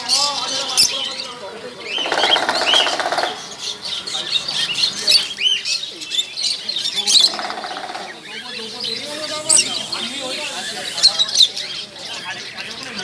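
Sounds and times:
parrots chirping and calling: 0:00.0 - 0:13.0
raspy bird calls: 0:00.0 - 0:13.0.

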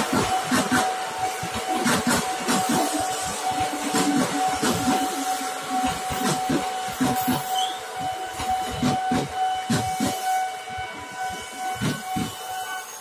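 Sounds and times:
train wheels clacking over rail joints: 0:00.0 - 0:10.3.

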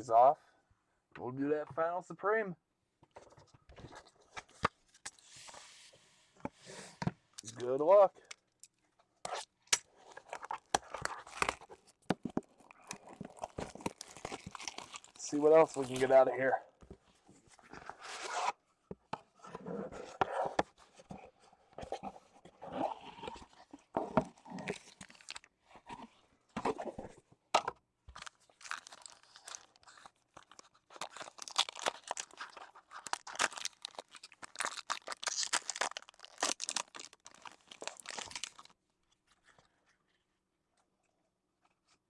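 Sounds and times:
plastic wrapping crinkling and tearing: 0:09.3 - 0:16.3, 0:24.3 - 0:25.5, 0:28.2 - 0:38.8
wrapper and cards rustling: 0:10.0 - 0:16.5, 0:28.2 - 0:38.7.

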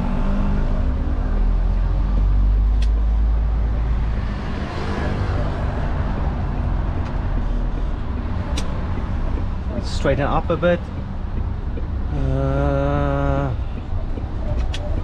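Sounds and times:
diesel engine rumble in cab: 0:00.0 - 0:15.0
sharp click: 0:02.7 - 0:03.1.

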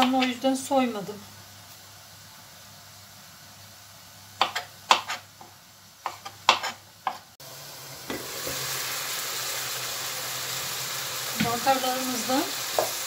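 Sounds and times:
food sizzling in a pan: 0:00.0 - 0:13.0
knife chopping on plastic board: 0:04.4 - 0:05.2, 0:06.0 - 0:07.2.

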